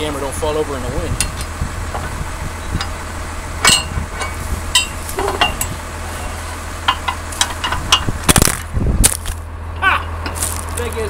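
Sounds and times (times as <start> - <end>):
steady low rumble: 0.0 - 11.0
metallic clinks and knocks: 3.6 - 5.8.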